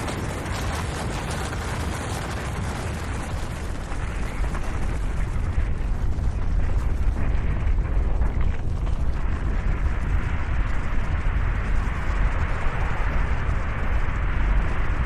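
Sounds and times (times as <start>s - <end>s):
avalanche rumbling: 0.0s - 15.0s.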